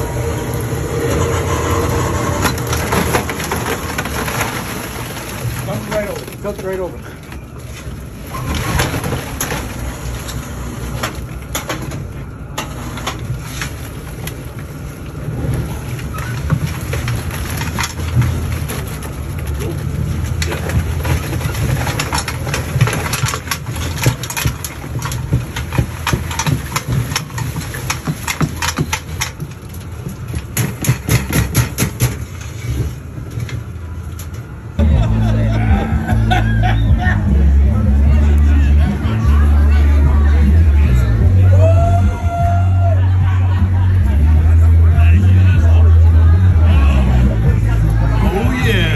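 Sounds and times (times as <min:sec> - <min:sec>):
steady low rumble: 0:00.0 - 0:08.3, 0:33.0 - 0:48.9.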